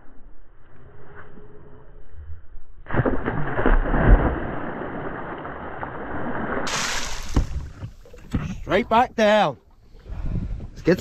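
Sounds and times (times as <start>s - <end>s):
water splashing: 2.9s - 8.6s
water gurgling: 3.8s - 8.4s.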